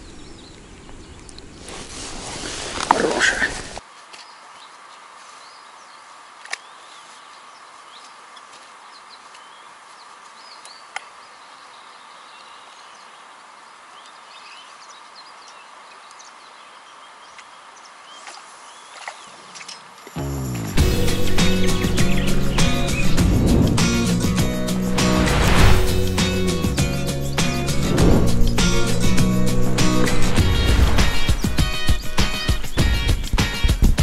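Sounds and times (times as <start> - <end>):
small birds chirping: 0.0 - 1.6, 3.2 - 34.0
steady outdoor hiss: 0.0 - 34.0.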